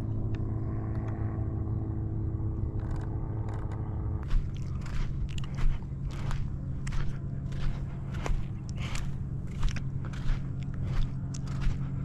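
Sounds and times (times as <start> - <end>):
low rumble: 0.0 - 12.0
footsteps on dry mud and sticks: 4.2 - 12.0.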